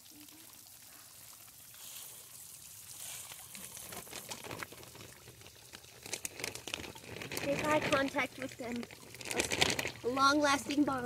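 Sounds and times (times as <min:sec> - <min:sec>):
water sloshing in plastic bag: 0:01.4 - 0:11.0
plastic bag crinkling: 0:03.0 - 0:10.8.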